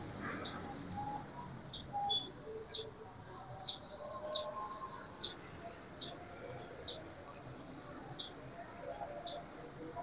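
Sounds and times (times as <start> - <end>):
small bird chirping: 0.4 - 2.9, 3.6 - 7.5, 8.1 - 8.4.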